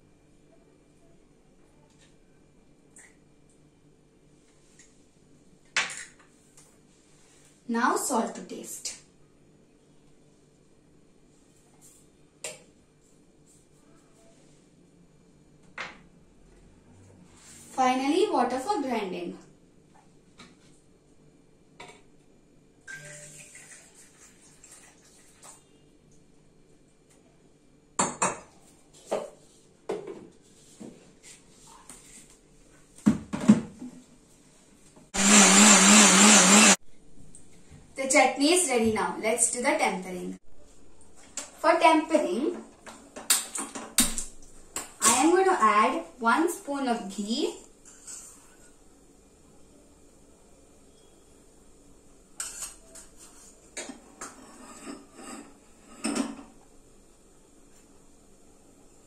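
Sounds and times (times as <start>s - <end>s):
electric mixer grinder running: 35.2s - 36.8s.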